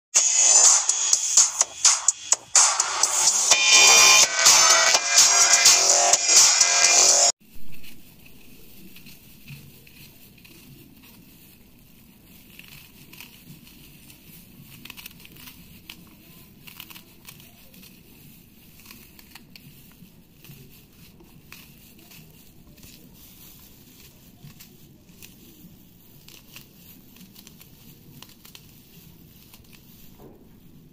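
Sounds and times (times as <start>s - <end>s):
plastic glove crinkling: 7.4s - 30.9s.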